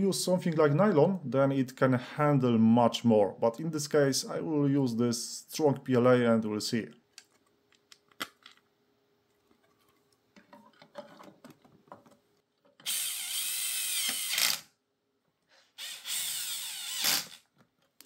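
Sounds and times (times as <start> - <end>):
cordless drill whine: 12.8 - 14.7, 15.8 - 17.4.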